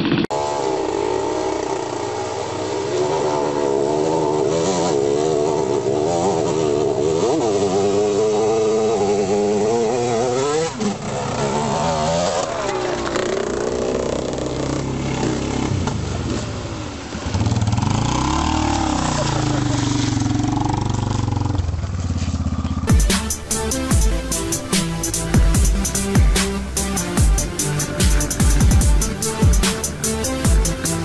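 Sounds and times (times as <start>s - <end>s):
deep engine sound: 0.0s - 7.3s, 22.7s - 31.0s
dirt bike engines revving: 0.0s - 31.0s
bikes pushing through water: 7.9s - 22.4s.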